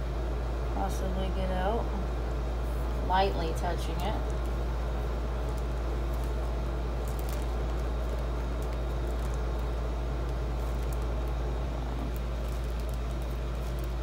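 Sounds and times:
steady low hum: 0.0s - 14.0s
plastic sheet crinkling: 3.8s - 14.0s.

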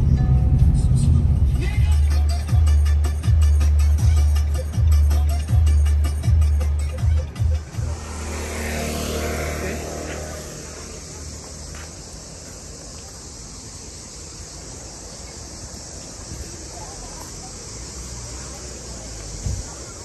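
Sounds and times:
low-pitched hum: 0.0s - 2.7s
cicadas chorus: 1.6s - 20.0s.

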